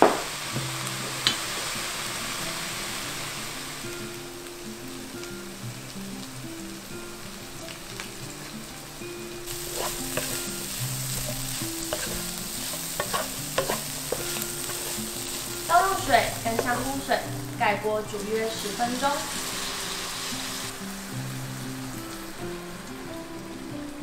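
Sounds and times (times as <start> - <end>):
food sizzling in a wok: 0.0 - 24.0
spatula scraping and tapping pan: 9.5 - 17.2.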